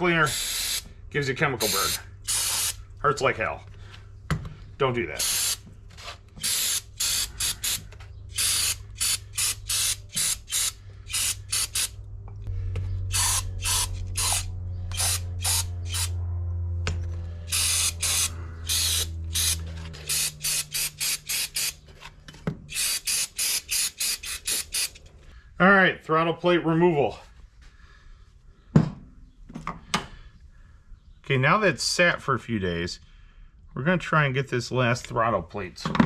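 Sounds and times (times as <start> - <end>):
steady low hum: 0.0 - 35.6
aerosol spray hissing bursts: 0.3 - 0.8.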